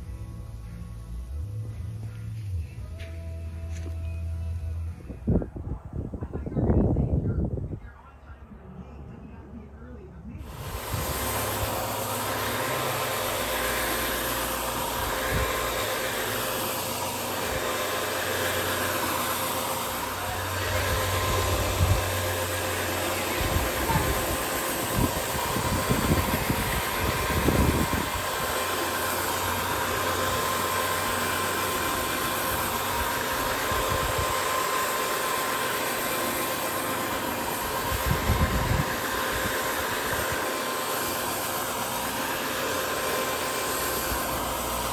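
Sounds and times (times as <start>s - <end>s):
rug scrubbing machine humming: 9.3s - 44.9s.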